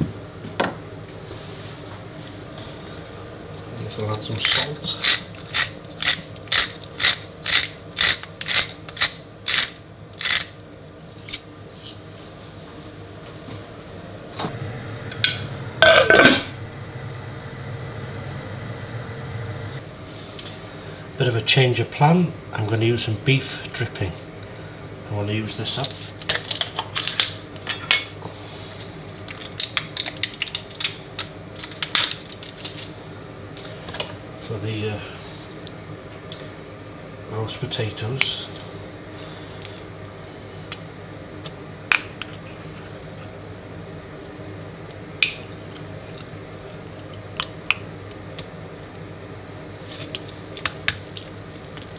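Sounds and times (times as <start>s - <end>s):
salt mill grinding: 4.9s - 10.6s.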